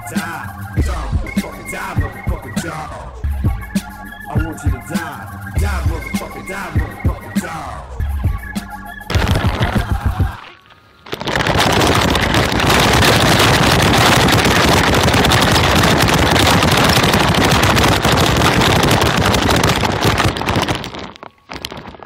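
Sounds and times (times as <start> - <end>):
remote-control car rattling: 11.2 - 20.9.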